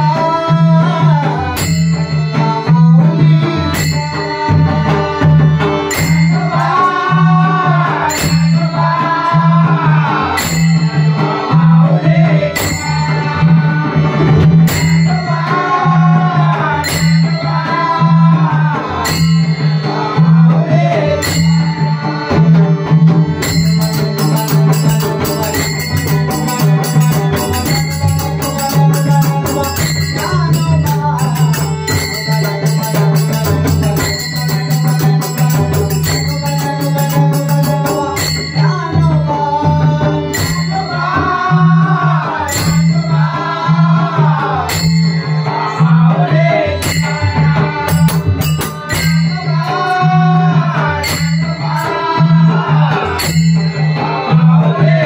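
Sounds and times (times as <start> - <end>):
harmonium: 0.0 - 55.0
man singing: 0.0 - 55.0
hand cymbals clashing: 1.6 - 2.8, 3.7 - 4.5, 5.9 - 7.2, 8.1 - 9.1, 10.4 - 11.8, 14.7 - 15.6, 16.8 - 17.9, 19.0 - 20.4, 21.2 - 22.4, 23.4 - 39.3, 42.5 - 43.7, 44.7 - 54.6
drum beat: 14.2 - 17.4, 20.4 - 55.0.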